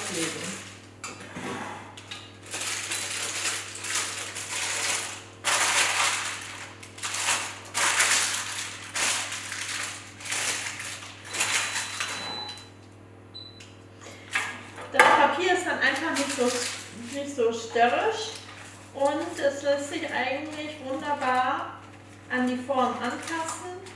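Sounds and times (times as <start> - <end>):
baking paper crinkling: 0.0 - 0.8, 2.4 - 12.2, 15.3 - 23.9.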